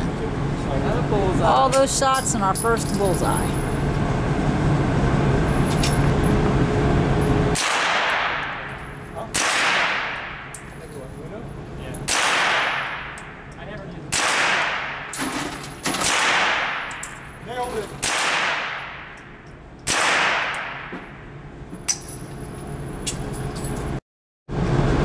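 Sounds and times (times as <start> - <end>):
rifle shots echoing indoors: 7.5 - 10.7, 12.0 - 13.4, 14.1 - 17.2, 18.0 - 19.2, 19.9 - 21.1.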